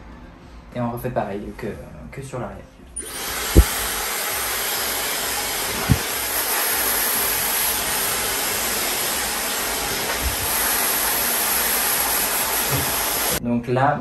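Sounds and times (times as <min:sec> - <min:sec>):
hair dryer blowing: 0:03.0 - 0:13.4.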